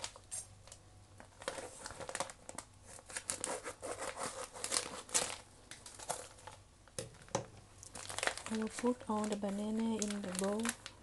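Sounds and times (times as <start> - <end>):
plastic bag crinkling: 0.0 - 11.0.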